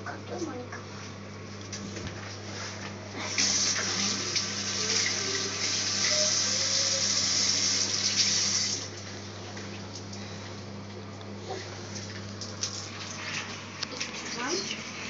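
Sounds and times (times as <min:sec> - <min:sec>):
water running from a bathtub tap: 0:03.2 - 0:08.9, 0:12.5 - 0:15.0.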